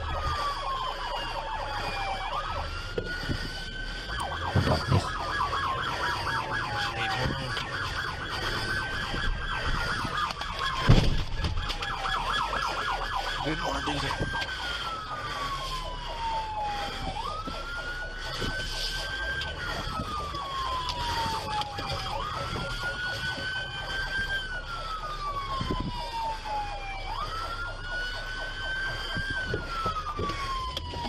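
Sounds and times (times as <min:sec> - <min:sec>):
police sirens wailing and yelping: 0:00.0 - 0:31.0
heavy thump: 0:10.8 - 0:11.6.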